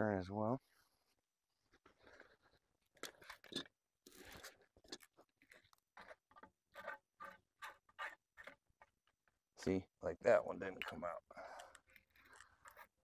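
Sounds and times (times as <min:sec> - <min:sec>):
hands scraping plastic fitting: 0:04.8 - 0:09.4, 0:10.6 - 0:13.0.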